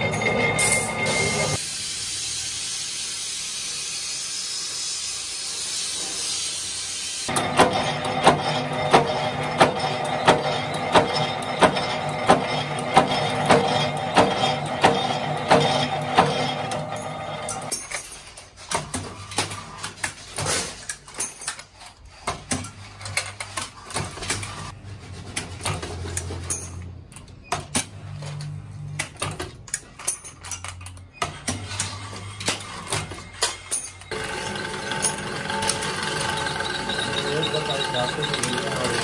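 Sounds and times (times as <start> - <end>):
key-cutting machine: 0.0 - 1.6, 7.3 - 17.7, 34.0 - 39.0
power press stamping metal: 7.3 - 17.7.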